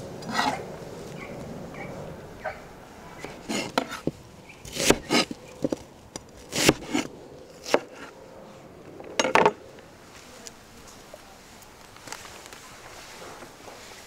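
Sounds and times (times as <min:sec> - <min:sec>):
knife slicing onion on board: 0:04.7 - 0:05.8, 0:06.5 - 0:08.0.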